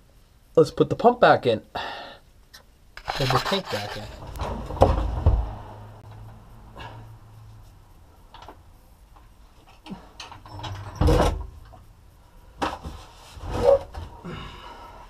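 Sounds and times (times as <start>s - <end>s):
clunks and scrapes of metal handling: 3.0s - 5.2s.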